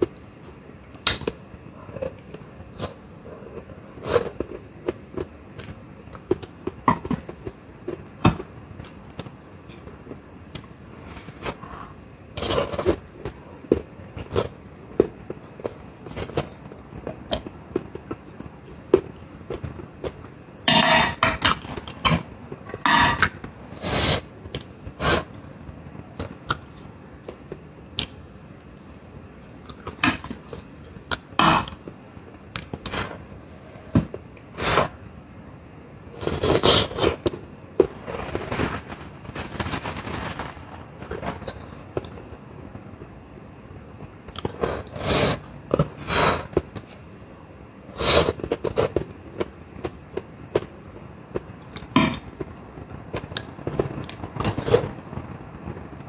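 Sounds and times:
fork scraping on plate: 0:20.7 - 0:21.5, 0:22.8 - 0:23.3.

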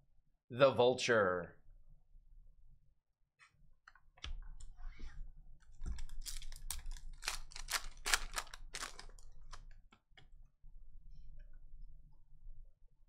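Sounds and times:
card pack wrapper crackling: 0:05.9 - 0:09.7.

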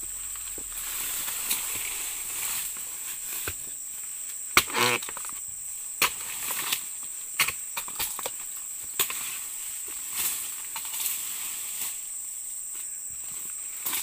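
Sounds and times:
high insect drone: 0:00.0 - 0:14.0
chisel chopping palm fronds: 0:04.5 - 0:05.4, 0:06.0 - 0:08.4, 0:09.0 - 0:09.4.

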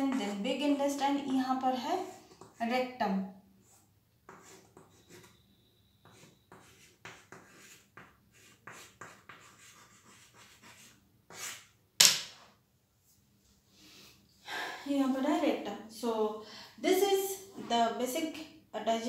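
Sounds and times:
chalk scratching on chalkboard: 0:00.0 - 0:00.6, 0:01.2 - 0:02.7, 0:03.6 - 0:11.8.

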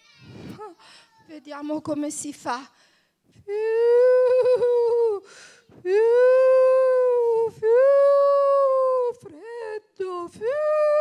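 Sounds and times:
quick breath: 0:05.2 - 0:05.8
woman imitating howling wind: 0:05.9 - 0:09.2.

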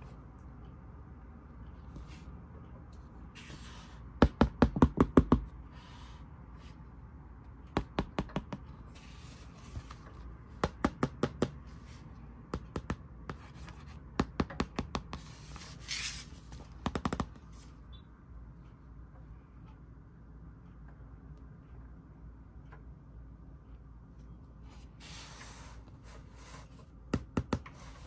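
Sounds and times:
fingernails tapping on cardboard: 0:04.2 - 0:05.5, 0:07.7 - 0:08.7, 0:10.6 - 0:11.6, 0:12.5 - 0:15.3, 0:16.7 - 0:17.4, 0:27.1 - 0:27.8.

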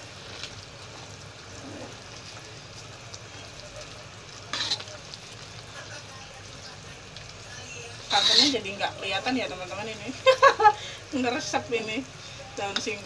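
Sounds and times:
food sizzling in a wok: 0:00.0 - 0:13.0
metal spatula stirring: 0:03.8 - 0:06.0, 0:07.7 - 0:09.4.

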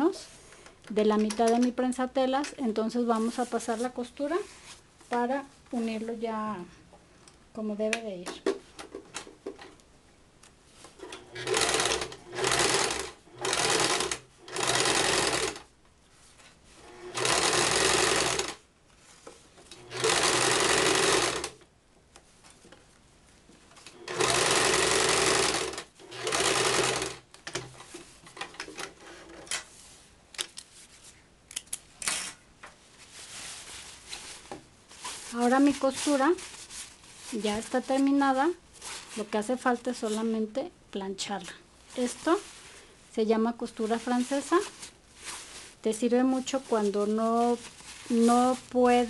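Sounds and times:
sewing machine stitching: 0:11.0 - 0:15.6, 0:16.9 - 0:18.6, 0:19.7 - 0:21.6, 0:23.9 - 0:27.6.

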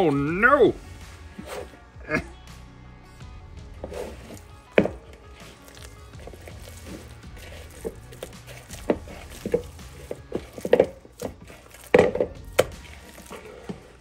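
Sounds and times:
hands kneading wet meat: 0:03.6 - 0:14.0
wet squelches and slaps: 0:03.8 - 0:14.0.

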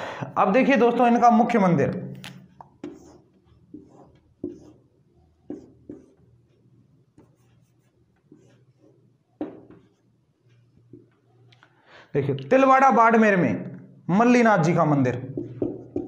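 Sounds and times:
marker squeaking on whiteboard: 0:02.1 - 0:11.5.

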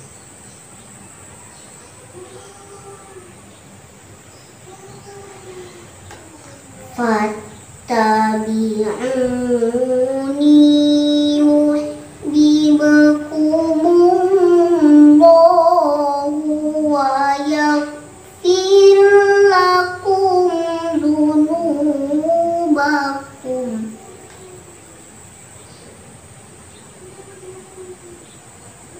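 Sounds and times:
girl chanting melodic recitation: 0:04.6 - 0:24.7.

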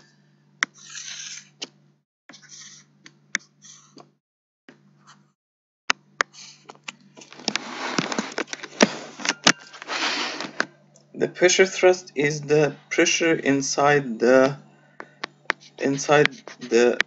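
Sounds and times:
stylus scratching on touchscreen: 0:00.7 - 0:01.6, 0:02.3 - 0:03.9, 0:15.5 - 0:17.0.

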